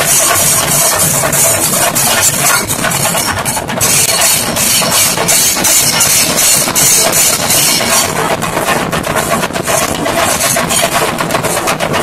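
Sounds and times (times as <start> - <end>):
hand cymbals clashing: 0.0 - 8.3
loud fast drumming: 0.0 - 12.0.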